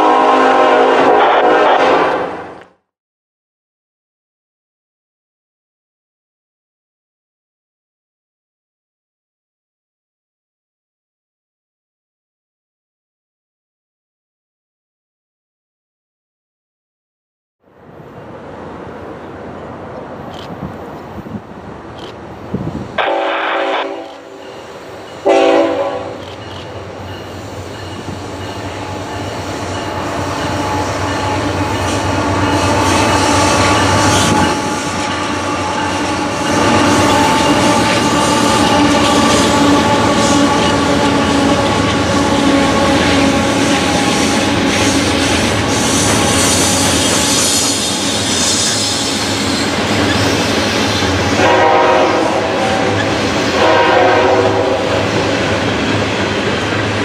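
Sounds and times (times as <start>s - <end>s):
diesel locomotive engine: 0.0s - 2.7s, 17.6s - 57.0s
train horn: 0.0s - 2.7s, 23.0s - 26.4s, 28.4s - 45.1s, 51.4s - 55.5s.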